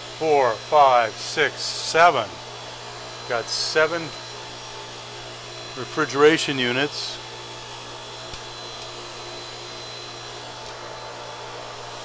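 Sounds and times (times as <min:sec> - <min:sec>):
faint high whine: 0:00.0 - 0:12.0
machinery humming: 0:00.0 - 0:12.0.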